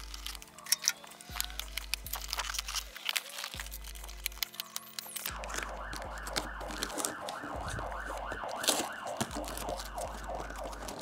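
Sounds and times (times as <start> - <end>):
police siren yelp: 5.3 - 11.0.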